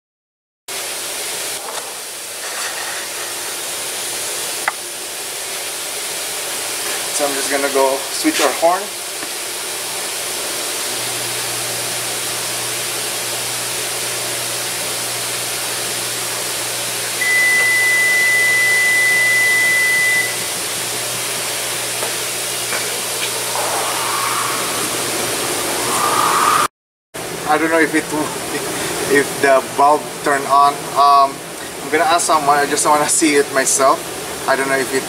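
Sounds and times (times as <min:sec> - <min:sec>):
workshop background hiss: 0:00.8 - 0:10.8, 0:17.0 - 0:26.7.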